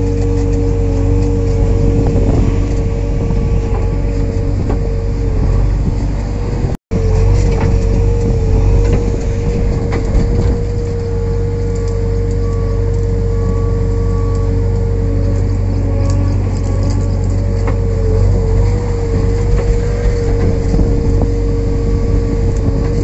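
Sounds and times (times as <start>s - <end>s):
diesel engine running under load: 0.0s - 23.0s
steady engine whine: 0.0s - 23.0s.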